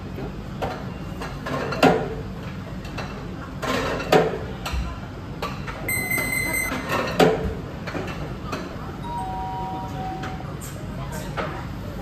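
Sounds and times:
restaurant clatter: 0.6s - 8.9s
high electronic beep: 5.9s - 6.8s.

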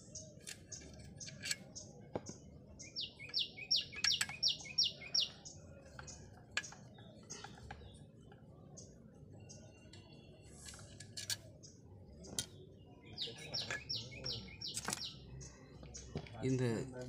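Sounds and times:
small bird chirping: 0.0s - 16.9s.

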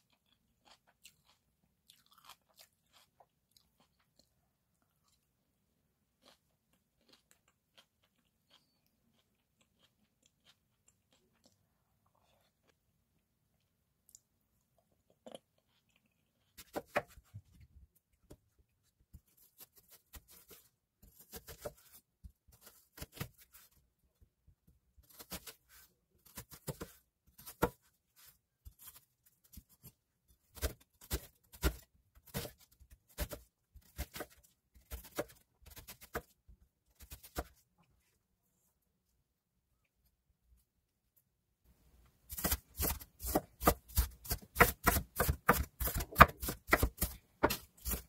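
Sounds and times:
knife cutting onion on board: 16.6s - 17.4s, 19.1s - 23.6s, 25.0s - 29.9s, 30.5s - 36.3s, 37.0s - 37.6s, 42.3s - 48.0s.

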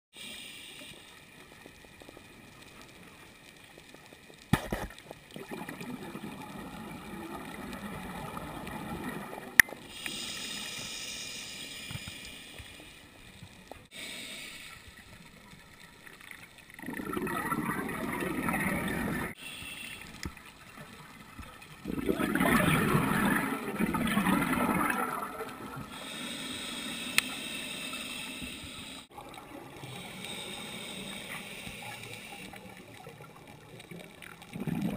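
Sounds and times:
regulator hiss: 0.2s - 1.3s, 9.9s - 15.4s, 19.4s - 20.3s, 26.0s - 29.1s, 29.8s - 32.7s
bubbling underwater exhalations: 16.8s - 19.4s, 21.8s - 25.9s, 34.4s - 34.9s.

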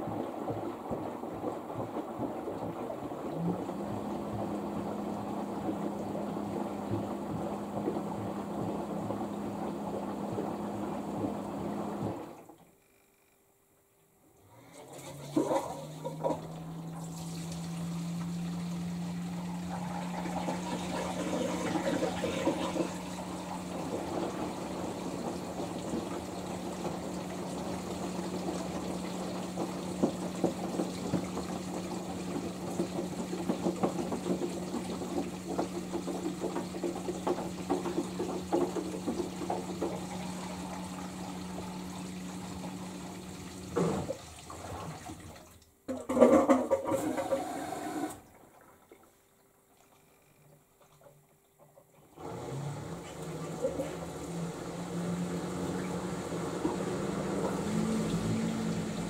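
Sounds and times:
drain pump humming: 0.0s - 12.8s, 14.3s - 59.0s
water draining with gurgling: 14.4s - 59.0s.

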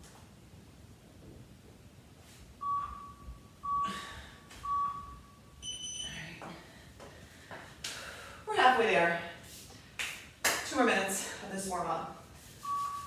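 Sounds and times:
higher beep: 2.6s - 6.2s, 12.6s - 13.0s
interval timer beeps: 2.6s - 6.2s, 12.6s - 13.0s.

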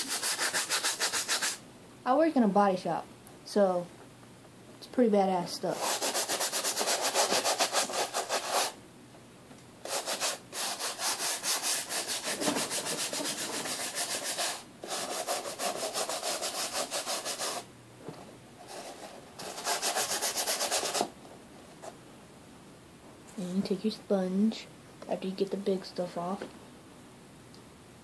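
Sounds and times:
brush scrubbing cloth cap: 0.0s - 1.6s, 5.7s - 8.8s, 9.9s - 17.6s, 18.6s - 21.1s.

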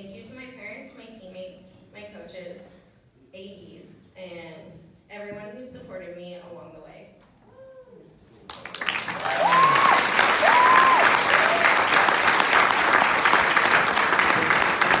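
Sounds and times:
audience applauding: 8.5s - 15.0s
shouted cheers: 9.0s - 12.1s.

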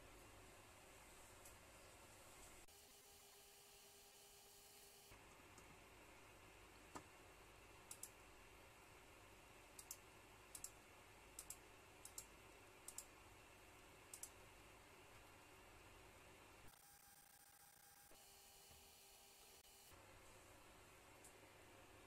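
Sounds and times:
quiet room hum: 0.0s - 22.0s
computer mouse clicks: 7.9s - 8.2s, 9.8s - 10.8s, 11.4s - 13.1s, 14.1s - 14.4s.

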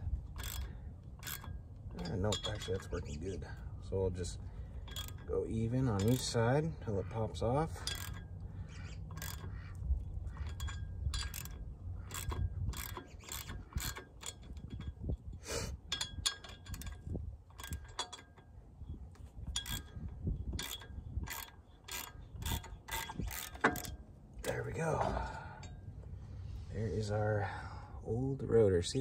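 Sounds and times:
hand ratchet clicking: 0.0s - 3.1s, 4.7s - 6.5s, 7.8s - 9.7s, 10.3s - 15.2s, 15.9s - 18.5s, 19.4s - 24.0s.

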